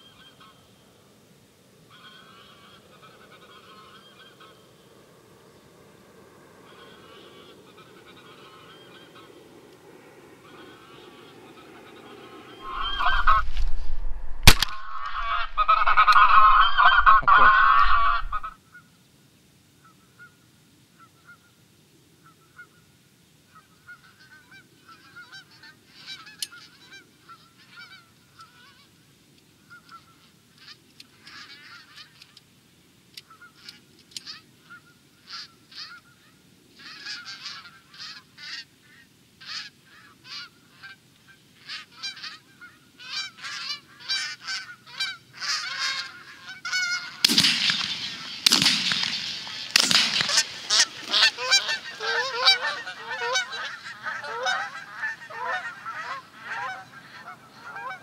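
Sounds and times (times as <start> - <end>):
low wind rumble: 0.5 - 18.6
geese honking: 1.9 - 4.8, 6.6 - 9.6, 10.4 - 13.6, 14.5 - 18.8, 23.5 - 28.9, 29.6 - 32.4, 33.2 - 58.0
sharp click: 14.4 - 15.1.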